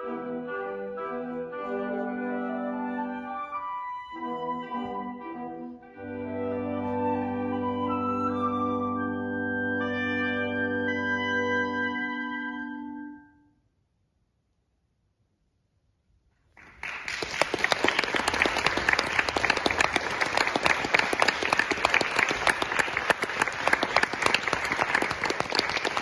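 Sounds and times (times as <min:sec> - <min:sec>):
crowd applauding: 0:16.6 - 0:26.0.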